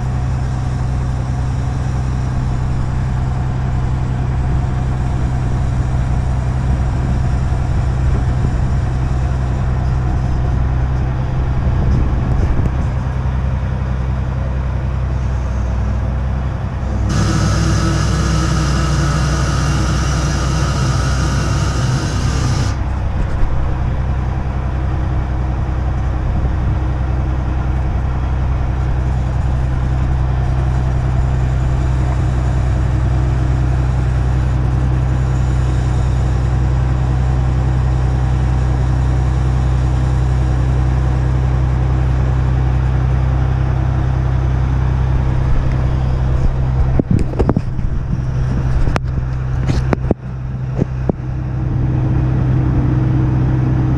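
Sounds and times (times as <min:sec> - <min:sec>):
diesel engine droning: 0:00.0 - 0:53.9
loud rushing hiss with whine: 0:16.8 - 0:24.2.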